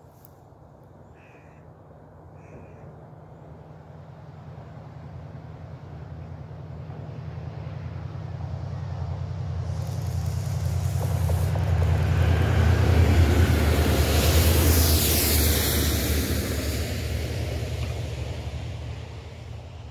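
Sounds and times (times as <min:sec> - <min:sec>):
locomotive engine drone: 0:01.7 - 0:19.9
train wheels rushing on rails: 0:05.8 - 0:19.9.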